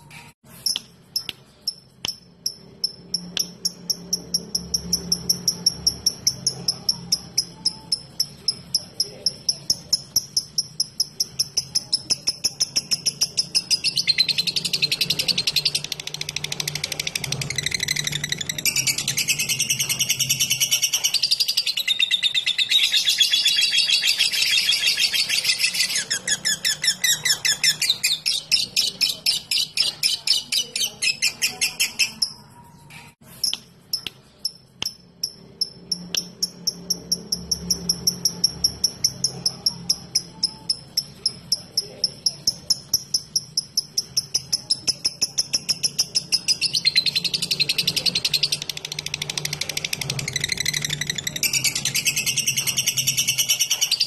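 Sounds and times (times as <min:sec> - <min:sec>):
lovebird chattering song: 0:00.0 - 0:54.0
repeated high ticking notes: 0:00.7 - 0:13.9.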